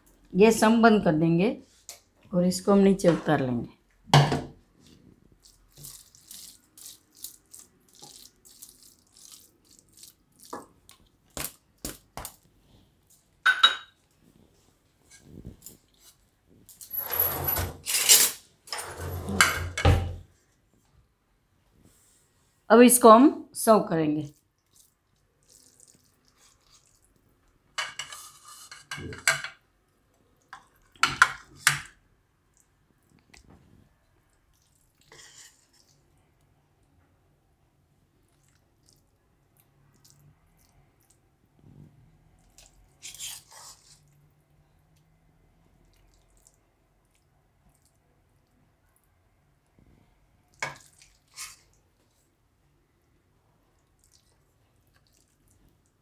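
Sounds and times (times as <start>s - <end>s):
spatula scraping pan: 27.8s - 29.3s, 35.1s - 35.8s, 43.0s - 44.0s.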